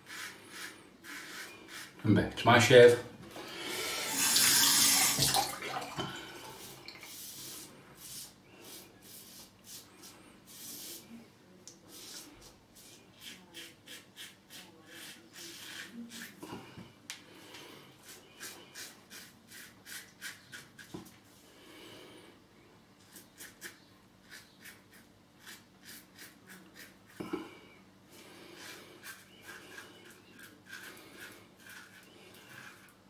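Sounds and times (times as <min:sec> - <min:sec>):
razor scraping stubble: 0:00.0 - 0:02.0, 0:11.9 - 0:16.4, 0:18.0 - 0:21.1, 0:23.1 - 0:27.3, 0:28.6 - 0:33.0
running water: 0:03.8 - 0:07.2.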